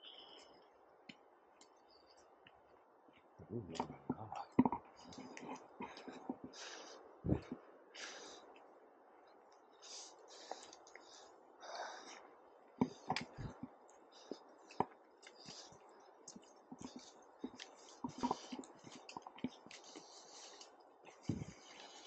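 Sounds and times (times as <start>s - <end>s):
breathing: 5.8s - 8.6s, 9.8s - 12.3s, 15.2s - 16.2s, 19.7s - 22.0s.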